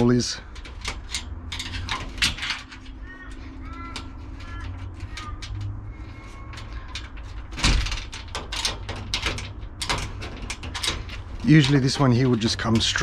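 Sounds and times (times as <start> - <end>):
screwdriver clicking and scraping metal: 0.5 - 5.7.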